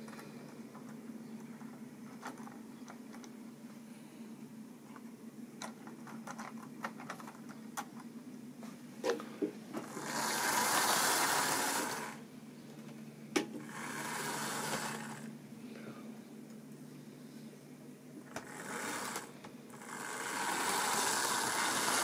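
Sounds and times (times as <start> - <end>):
steady low hum: 0.0 - 22.0
model train motor whirring: 9.8 - 12.2, 13.6 - 15.3, 18.2 - 22.0
wheels clicking over rail joints: 19.9 - 22.0.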